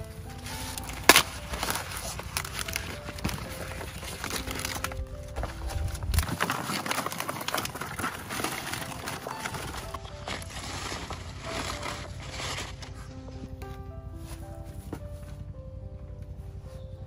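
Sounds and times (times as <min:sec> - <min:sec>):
faint background music: 0:00.0 - 0:17.0
clicks and cracks: 0:00.3 - 0:13.0.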